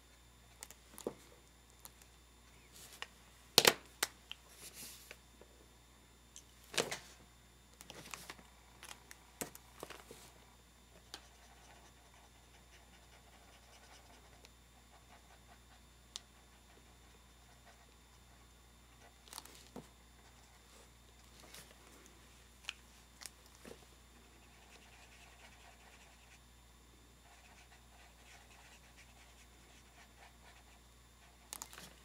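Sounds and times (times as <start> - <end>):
marker scratching on paper: 11.2 - 15.8, 27.2 - 31.5.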